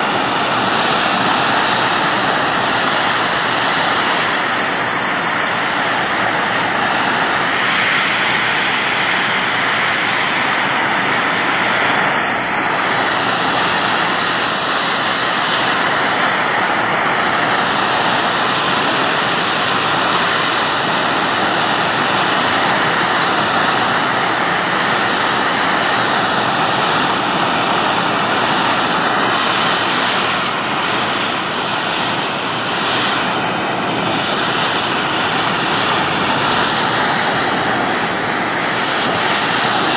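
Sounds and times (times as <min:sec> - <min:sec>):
gas torch flame hissing: 0:00.0 - 0:39.9.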